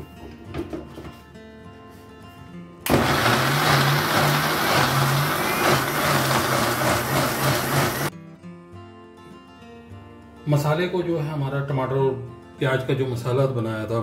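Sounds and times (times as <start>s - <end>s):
mixer grinder blending: 2.9s - 8.1s.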